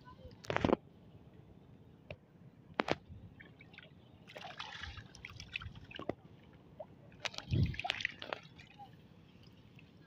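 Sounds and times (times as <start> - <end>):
small water splashes: 3.3 - 10.0.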